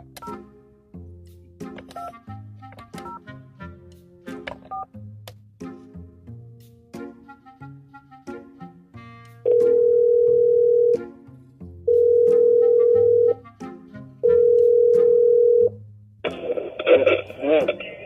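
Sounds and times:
background music: 0:00.0 - 0:18.0
telephone ringback beeps: 0:09.5 - 0:11.0, 0:11.9 - 0:13.4, 0:14.3 - 0:15.7.

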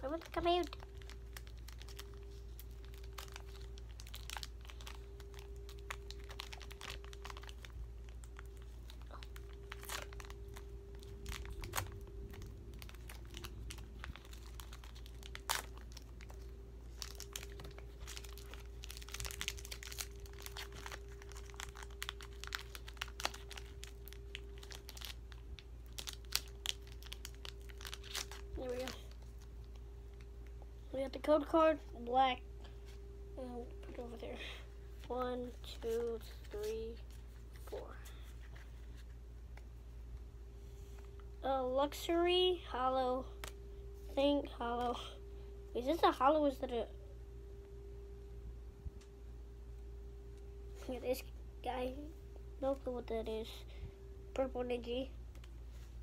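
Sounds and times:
foil wrapper crinkling: 0:00.0 - 0:30.5.

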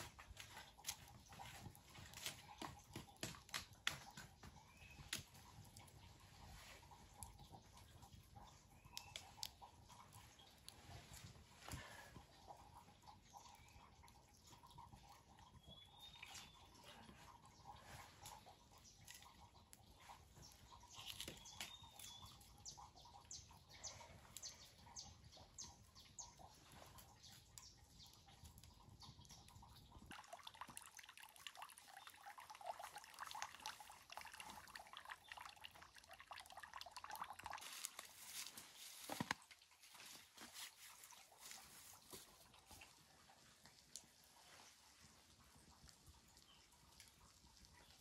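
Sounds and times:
campfire crackling: 0:00.0 - 0:48.0
light ticks: 0:08.8 - 0:10.8
soft rustling: 0:37.6 - 0:45.3.

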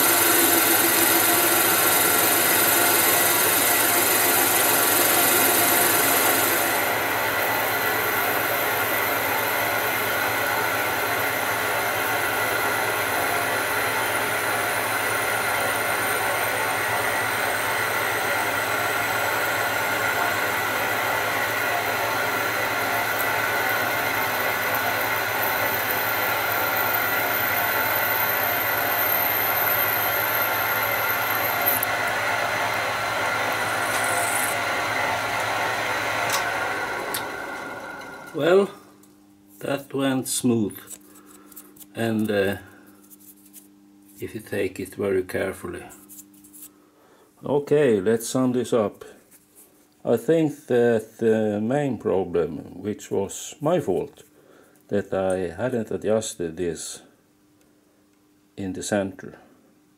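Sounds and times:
metal lathe drone: 0:00.0 - 0:38.6
high ringing tones from cutting: 0:22.4 - 0:32.8.

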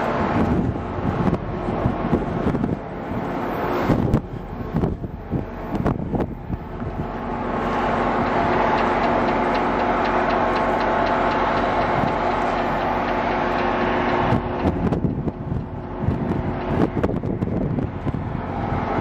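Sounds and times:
low hum: 0:00.0 - 0:19.0
train coaches rolling past: 0:00.0 - 0:19.0
fast run of clicks: 0:07.7 - 0:17.8.

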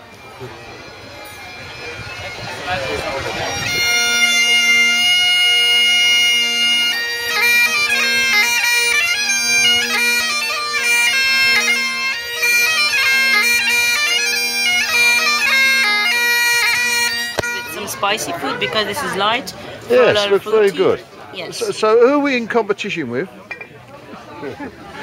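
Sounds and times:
bagpipe chanter tune: 0:00.0 - 0:20.9
bagpipe drone: 0:00.0 - 0:21.0.

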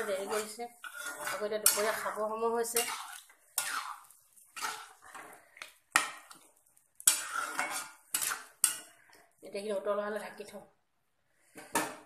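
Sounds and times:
metal spatula scraping a wok: 0:00.0 - 0:09.2.

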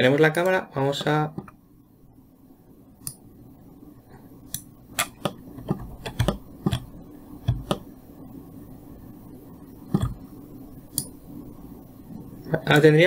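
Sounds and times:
mouse and keyboard clicks: 0:04.5 - 0:07.9.

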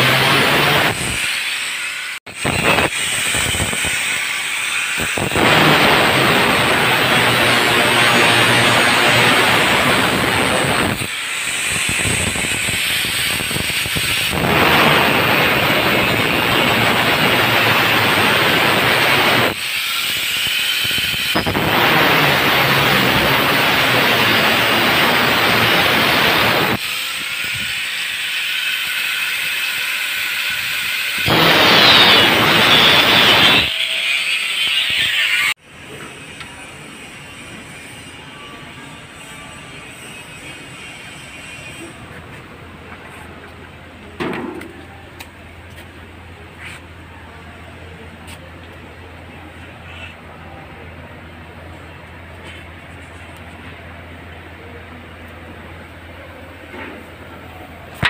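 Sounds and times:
angle grinder cutting metal: 0:00.0 - 0:35.6.

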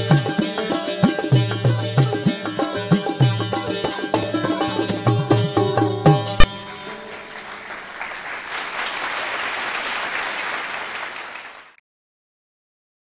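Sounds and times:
plucked string instrument: 0:00.0 - 0:07.6
audience applause: 0:06.5 - 0:11.8.

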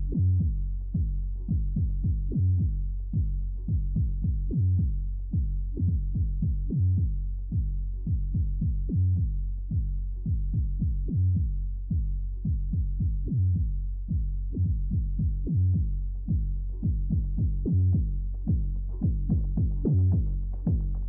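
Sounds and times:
electronic music with drum-machine beat: 0:16.3 - 0:21.0.

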